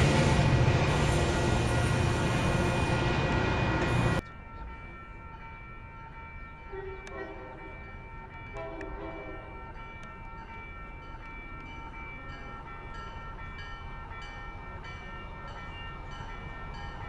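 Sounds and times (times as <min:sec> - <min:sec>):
train rushing past: 0:00.0 - 0:04.2
station ambience: 0:00.0 - 0:17.0
distant train horn: 0:06.7 - 0:07.9, 0:08.6 - 0:09.7.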